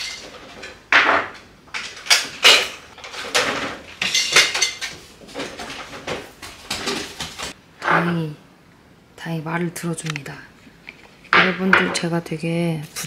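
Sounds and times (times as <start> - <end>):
household items clattering: 0.0 - 8.0.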